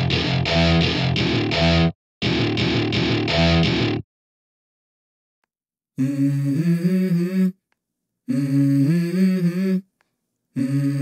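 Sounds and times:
person humming: 6.0s - 7.7s, 8.3s - 10.0s, 10.6s - 11.0s.

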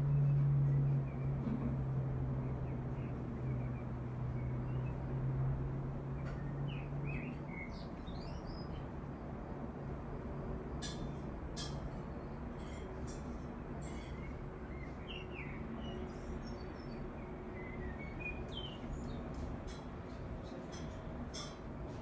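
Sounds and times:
low outdoor rumble: 0.0s - 22.0s
birds chirping: 6.1s - 8.9s, 13.8s - 21.7s.

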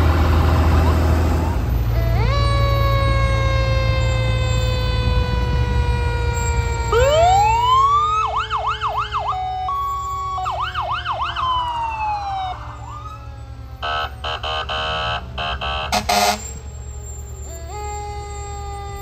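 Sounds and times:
siren winding down: 0.8s - 19.0s
siren yelping: 1.7s - 19.0s.

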